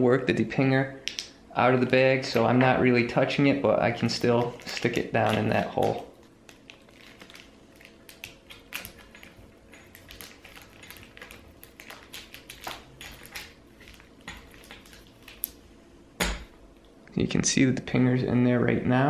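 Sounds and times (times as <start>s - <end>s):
plastic bag crinkling: 4.0s - 15.6s.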